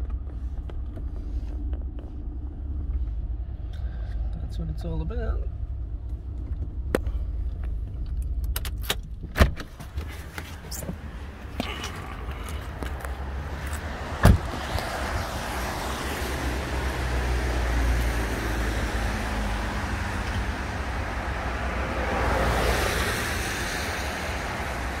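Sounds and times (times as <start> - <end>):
low traffic rumble: 0.0 - 25.0
tyre hiss on wet road: 22.2 - 25.0.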